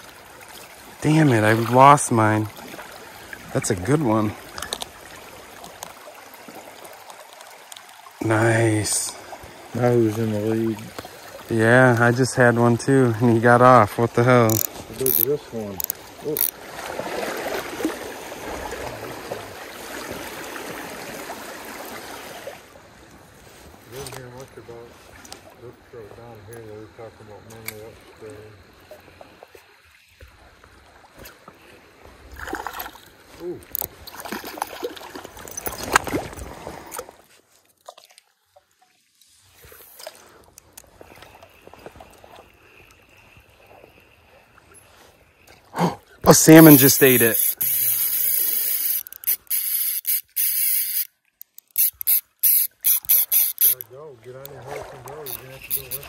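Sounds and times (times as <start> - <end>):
stream rippling over gravel: 0.0 - 56.0
faint clicks: 14.5 - 16.6, 47.3 - 56.0.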